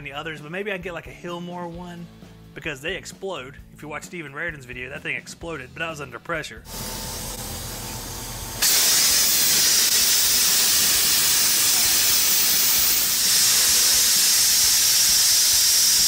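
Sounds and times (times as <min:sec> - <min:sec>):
pressurized refrigerant hissing: 0:06.7 - 0:16.0.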